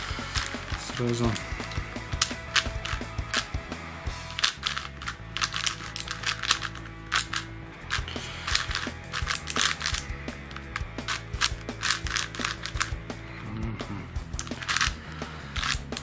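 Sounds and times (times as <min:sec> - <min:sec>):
plastic clicks of puzzle cube turning: 0:00.3 - 0:03.5, 0:04.3 - 0:10.1, 0:11.0 - 0:12.9, 0:14.4 - 0:16.0.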